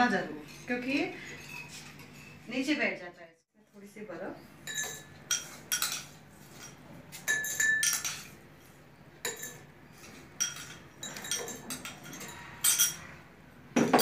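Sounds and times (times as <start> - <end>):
spoon and ice clinking against glass: 0.4 - 2.5, 4.6 - 8.4, 9.2 - 13.1.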